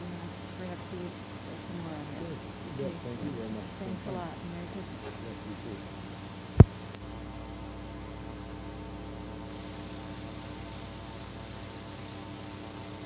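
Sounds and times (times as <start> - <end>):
faint hiss: 0.0 - 7.0
electrical mains hum: 0.0 - 13.0.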